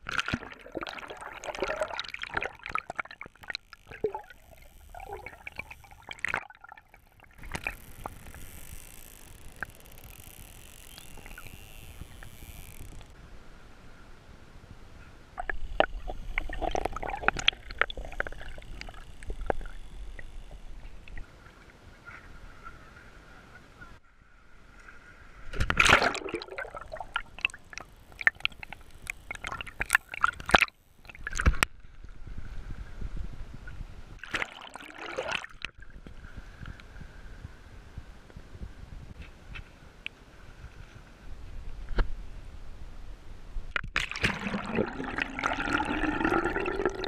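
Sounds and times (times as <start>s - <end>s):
water sloshing and splashing: 0.0s - 13.2s, 15.4s - 21.4s, 25.5s - 31.8s, 34.2s - 36.1s, 44.0s - 47.0s.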